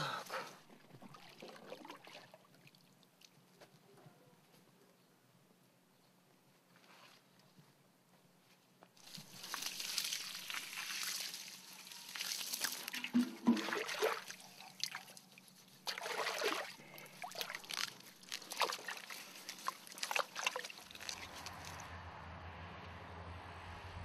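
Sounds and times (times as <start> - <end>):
water sloshing and splashing: 0.6 - 3.4, 9.0 - 21.9.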